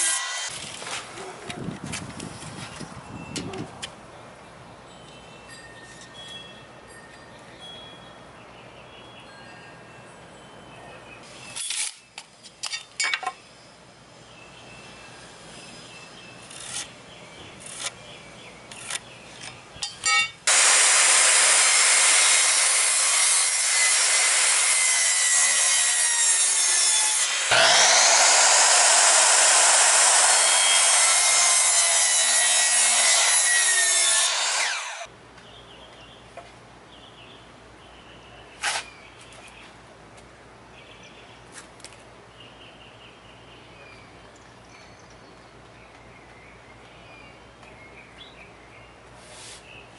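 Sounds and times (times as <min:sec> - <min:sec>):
miter saw cutting wood: 0:00.0 - 0:00.5, 0:20.5 - 0:35.1.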